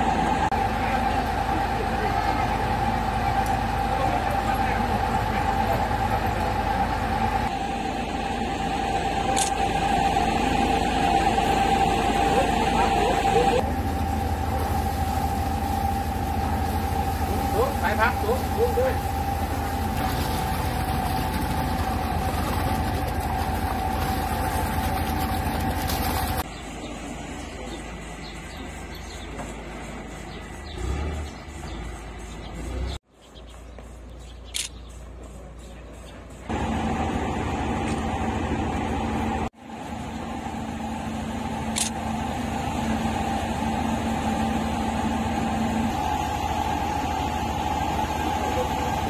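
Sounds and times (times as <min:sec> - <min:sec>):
truck engine running: 0:00.0 - 0:49.0
water gushing into plastic tub: 0:14.0 - 0:26.4.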